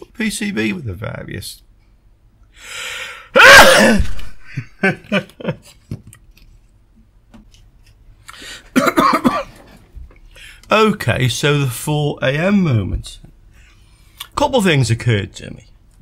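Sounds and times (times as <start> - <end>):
sharp intake of breath: 2.5 - 3.3
man sneezing: 3.3 - 4.4.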